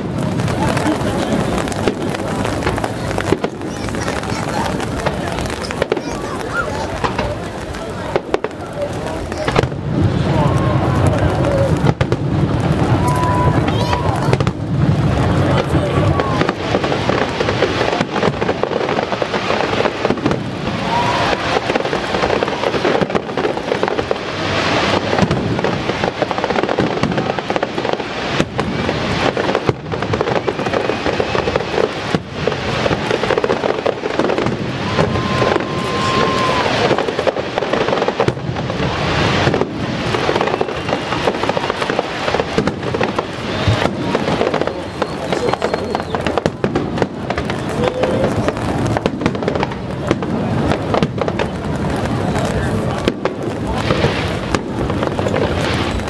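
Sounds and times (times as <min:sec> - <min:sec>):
fireworks crackling: 0:00.0 - 0:56.0
fireworks shells bursting: 0:16.4 - 0:56.0.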